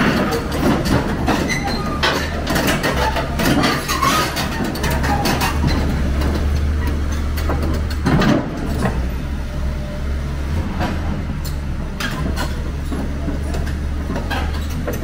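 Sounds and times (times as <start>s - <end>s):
diesel engine droning: 0.0s - 15.0s.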